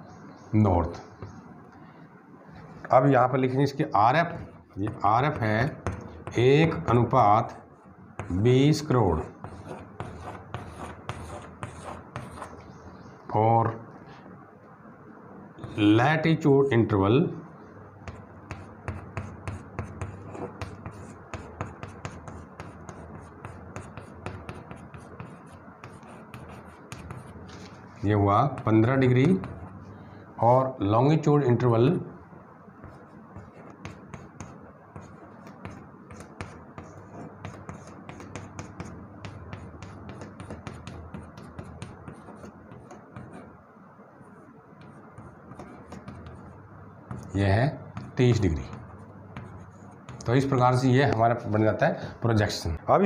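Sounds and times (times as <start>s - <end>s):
chalk writing on a blackboard: 4.1s - 12.8s, 18.0s - 29.8s, 32.8s - 43.6s, 44.8s - 50.5s.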